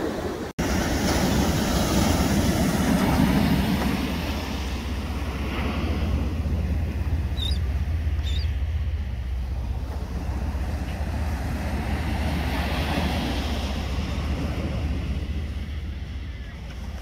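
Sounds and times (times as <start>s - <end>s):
surf breaking on beach: 0.0s - 17.0s
seabird call: 7.2s - 8.7s.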